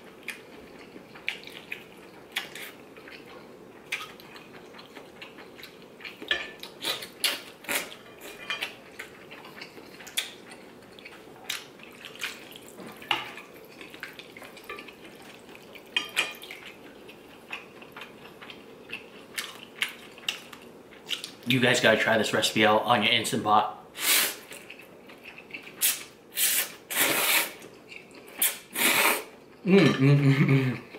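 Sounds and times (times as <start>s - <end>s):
chopsticks and spoon clinking on bowl: 7.9s - 9.7s, 14.5s - 15.3s, 15.9s - 16.7s.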